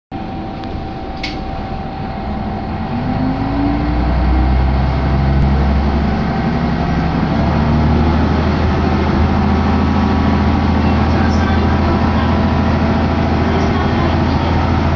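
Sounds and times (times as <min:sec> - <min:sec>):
train diesel engine revving: 0:00.2 - 0:14.9
short sharp click: 0:01.2 - 0:01.4.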